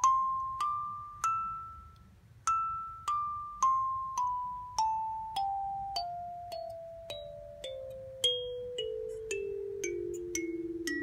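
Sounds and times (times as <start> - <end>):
kalimba notes plucked: 2.5 - 11.0.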